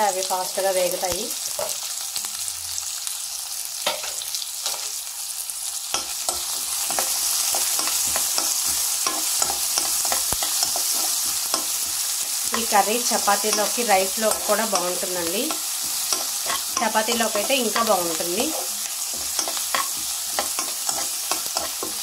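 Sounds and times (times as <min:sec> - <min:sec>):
onions sizzling in oil: 0:00.0 - 0:22.0
spoon scraping a pan: 0:05.9 - 0:22.0.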